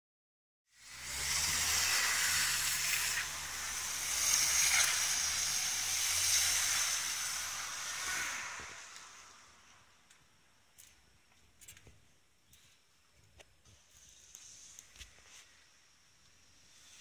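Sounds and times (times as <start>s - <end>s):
car engine drone: 0.7s - 10.6s.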